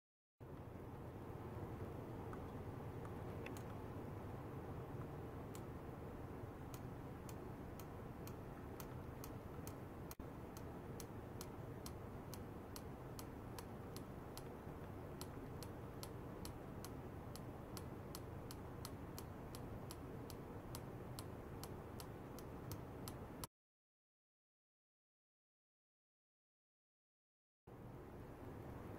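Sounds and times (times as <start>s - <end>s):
low hum: 0.4s - 23.5s
regular sharp ticking: 4.7s - 23.5s.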